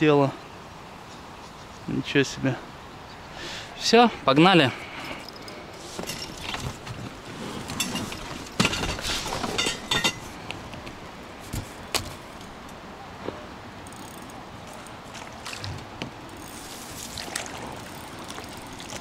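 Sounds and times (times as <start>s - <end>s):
rustling: 5.8s - 12.5s.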